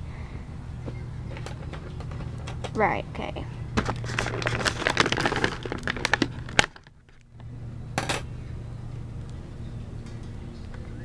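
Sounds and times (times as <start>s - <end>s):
plastic packaging crinkling: 3.8s - 7.3s.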